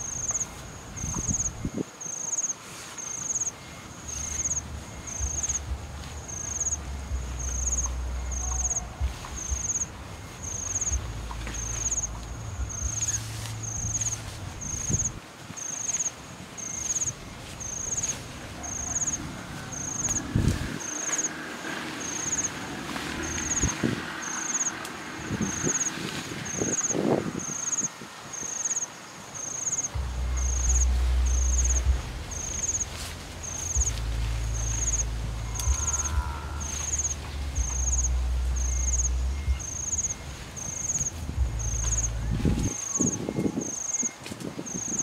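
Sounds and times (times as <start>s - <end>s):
insect chirping: 0.0s - 45.0s
low rumble: 4.1s - 15.2s, 29.9s - 43.5s.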